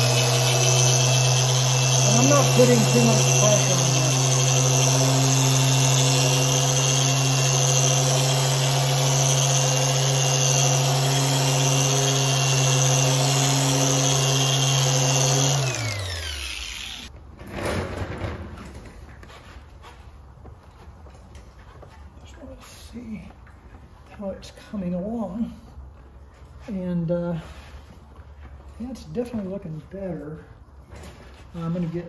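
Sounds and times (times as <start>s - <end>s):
orbital polisher running: 0.0s - 17.1s
polisher winding down: 0.0s - 17.1s.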